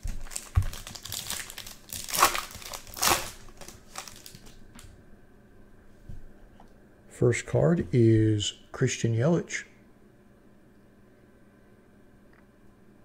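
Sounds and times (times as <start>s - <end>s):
wrapper crinkling: 0.0s - 4.6s.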